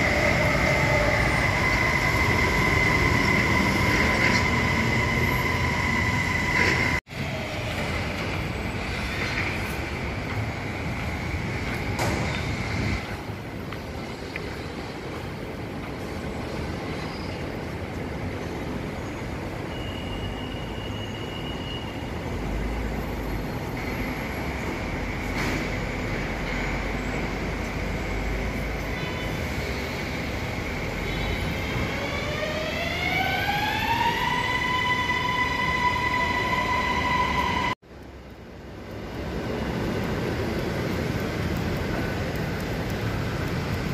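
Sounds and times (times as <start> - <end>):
train standing hum: 0.0 - 19.7
electric train whine: 0.0 - 43.9.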